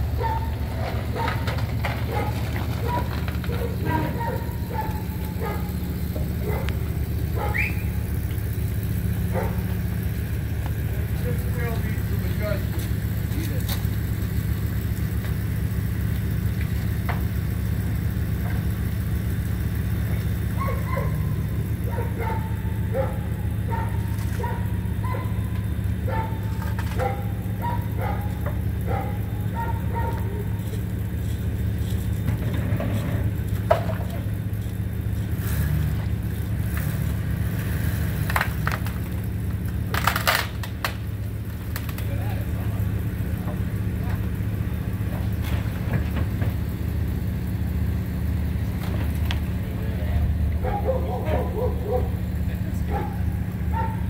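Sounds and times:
engine idling: 0.0 - 54.0
high squeaky chirps: 7.4 - 8.0.

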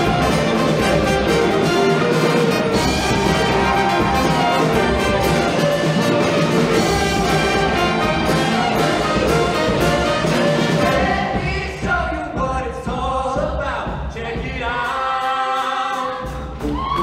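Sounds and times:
upbeat band with brass and drums: 0.0 - 17.0.

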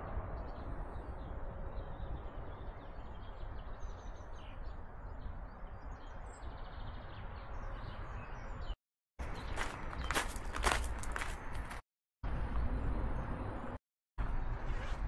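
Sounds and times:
small birds chirping: 1.8 - 11.8.

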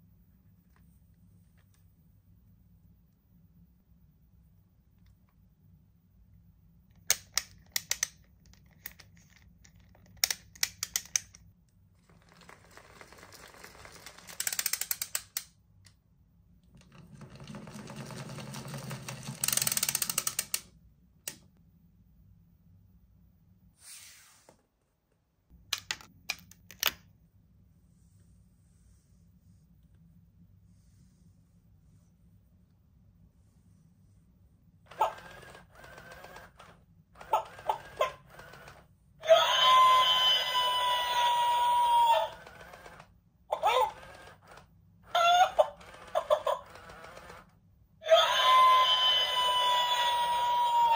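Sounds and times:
plastic toy clicks: 7.0 - 11.5, 13.9 - 15.5, 19.0 - 20.7.

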